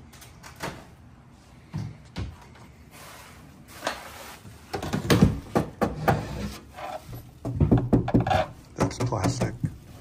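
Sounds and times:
knocks on computer case and crate: 0:04.8 - 0:06.2, 0:07.5 - 0:09.5.

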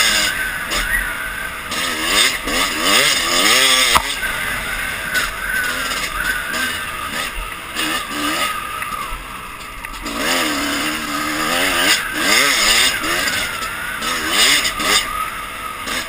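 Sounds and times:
dirt bike engine revving: 0:00.0 - 0:16.0
steady rushing noise: 0:00.0 - 0:16.0.

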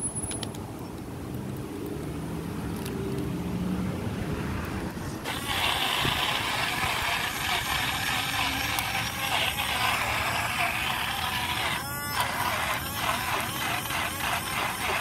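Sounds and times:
low traffic rumble: 0:00.0 - 0:15.0
blender whirring: 0:05.2 - 0:15.0.

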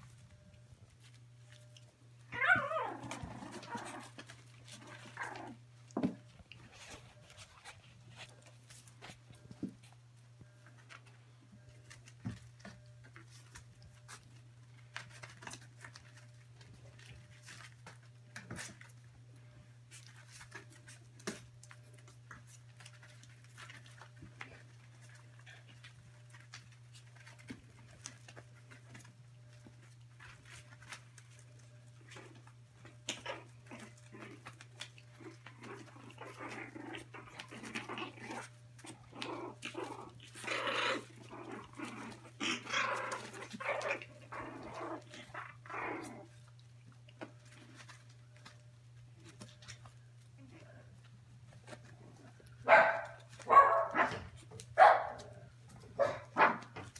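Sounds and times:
puppy paws pattering and scratching: 0:00.0 - 0:56.9
puppy yips and growls: 0:02.3 - 0:05.6, 0:33.1 - 0:46.4.

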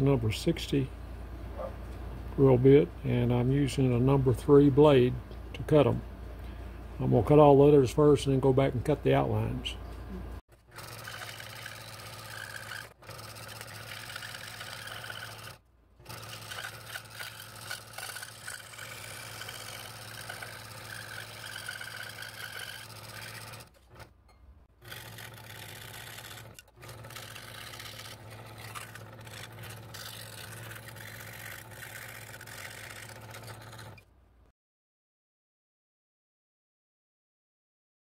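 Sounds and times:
scroll saw humming: 0:10.5 - 0:24.2, 0:24.8 - 0:34.1
saw blade rasping in wood: 0:11.0 - 0:23.7, 0:24.8 - 0:34.0.

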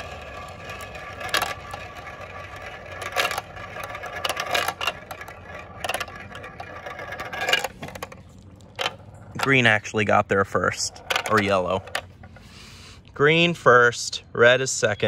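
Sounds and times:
marbles clacking together: 0:00.0 - 0:09.7, 0:10.5 - 0:12.1
marbles rolling in plastic funnel: 0:00.0 - 0:12.1.

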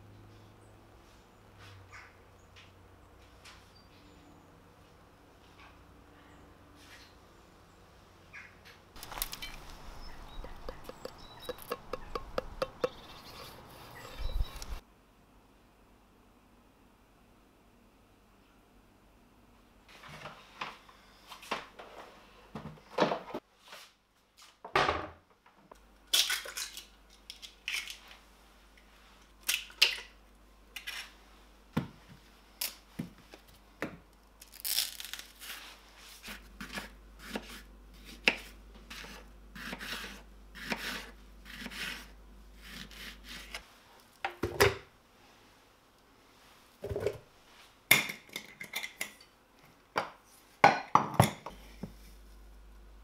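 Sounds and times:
rustles: 0:09.0 - 0:11.5
knife cutting on wooden board: 0:10.3 - 0:14.8, 0:36.2 - 0:43.6.

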